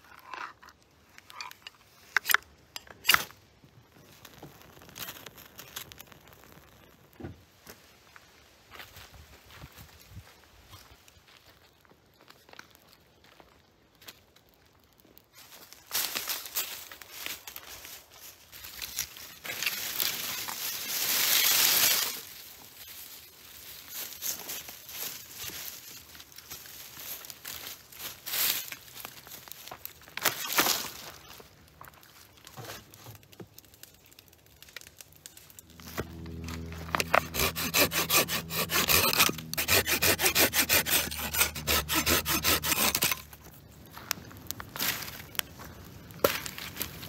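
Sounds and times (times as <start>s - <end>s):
tinder crackling in campfire: 0.1s - 47.0s
footsteps on dry forest floor: 7.7s - 14.7s, 15.3s - 33.4s, 35.6s - 47.0s
brush rustling: 35.6s - 47.0s.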